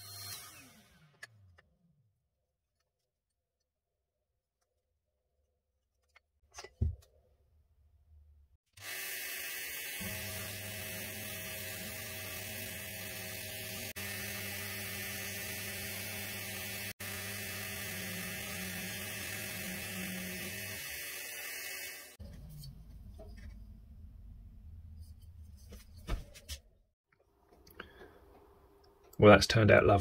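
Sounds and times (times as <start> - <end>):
drill press motor hum: 0.0 - 1.6, 8.8 - 22.2.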